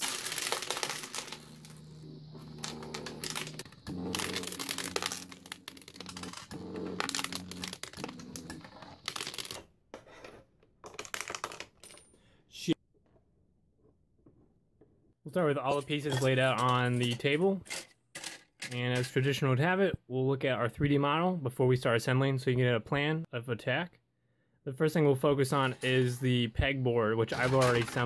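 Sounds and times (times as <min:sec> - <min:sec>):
coins clinking and sliding: 0:00.0 - 0:12.1, 0:27.3 - 0:28.0
low steady hum: 0:00.1 - 0:08.7.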